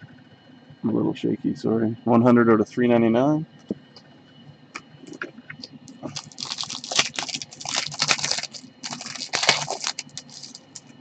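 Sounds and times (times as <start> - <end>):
trading cards shuffling: 5.6 - 10.8.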